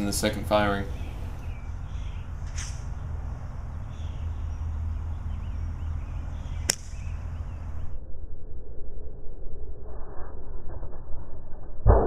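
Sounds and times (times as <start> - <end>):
low rumble: 0.0 - 12.0
mortar firing crack: 6.7 - 7.0.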